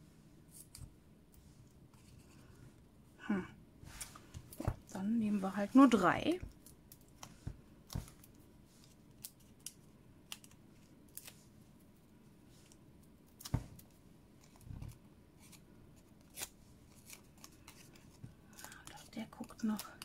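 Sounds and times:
soft thud: 13.5s - 13.8s.

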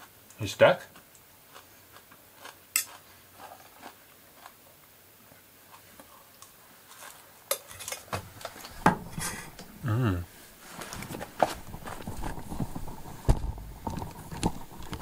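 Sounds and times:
fork scraping a metal bowl: 9.1s - 9.6s.

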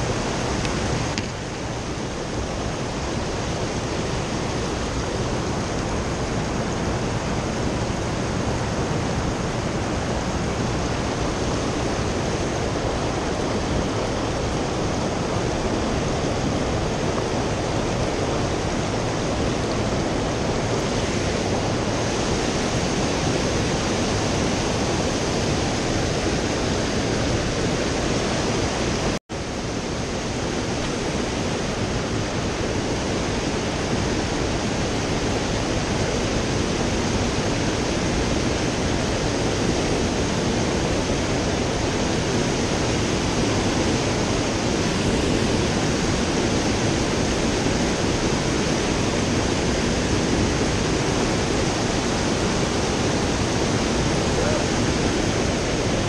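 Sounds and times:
stream rushing over rocks: 0.0s - 56.0s.

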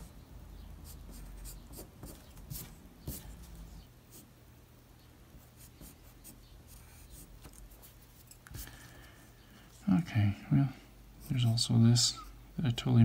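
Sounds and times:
pencil scratching on paper: 0.8s - 3.4s.

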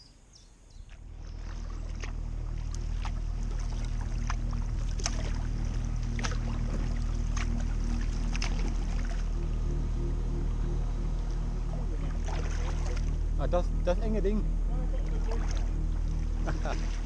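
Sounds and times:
low steady rumble: 0.1s - 17.0s
paddle strokes dipping into water: 0.8s - 9.4s, 12.0s - 13.2s, 15.0s - 17.0s.

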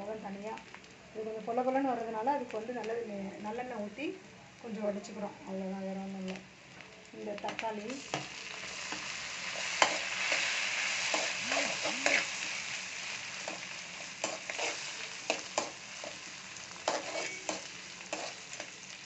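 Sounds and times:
vegetables sizzling in hot oil: 0.0s - 19.0s
spatula scraping and knocking pan: 16.9s - 18.7s.

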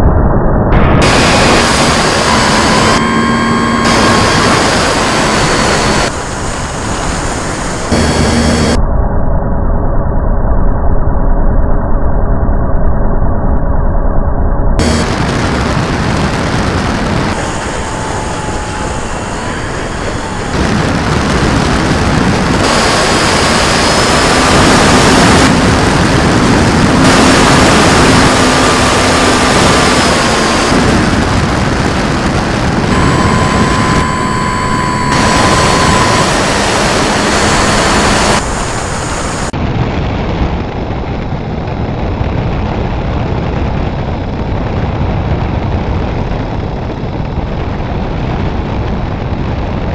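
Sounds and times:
wind rush on microphone: 0.0s - 8.8s, 14.8s - 49.9s
electric motor and propeller whining: 0.8s - 8.8s, 14.8s - 39.6s.

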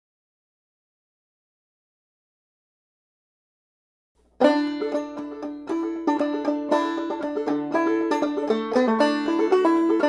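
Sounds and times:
banjo plucked notes: 4.3s - 10.0s.

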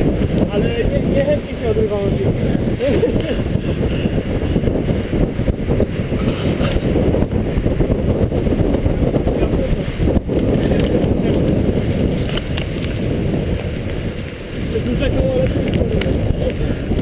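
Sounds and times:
bike tyres rolling on dirt: 0.0s - 17.0s
wind buffeting microphone: 0.0s - 17.0s
bike clicks and rattles: 0.1s - 5.1s, 6.1s - 7.4s, 10.0s - 17.0s.

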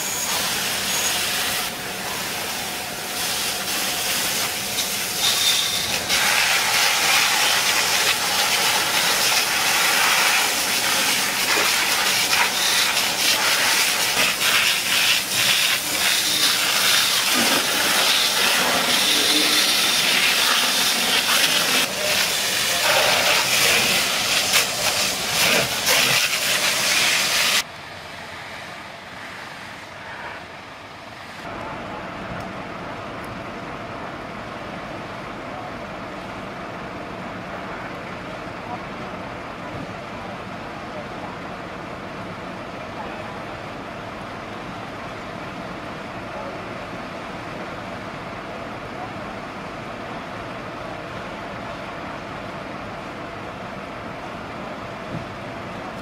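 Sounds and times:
fire hose water spray hissing: 0.0s - 27.6s.

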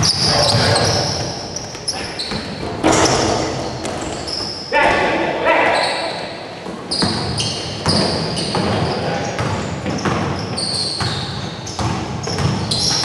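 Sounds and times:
voices: 0.0s - 6.6s
sneaker squeaks: 0.0s - 13.0s
basketball bouncing on hardwood: 0.5s - 5.0s, 6.6s - 8.8s, 11.8s - 13.0s.

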